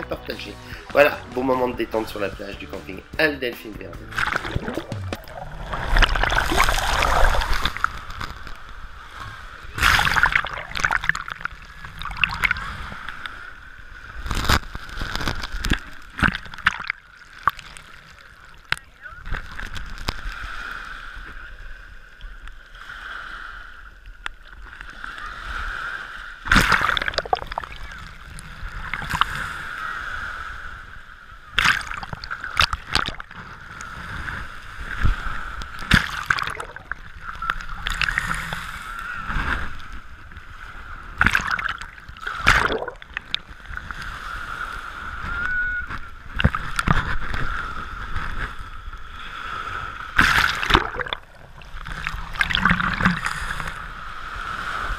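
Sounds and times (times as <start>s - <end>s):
loud wave splashes: 0.0s - 8.1s
small waves breaking on sand: 3.7s - 54.9s.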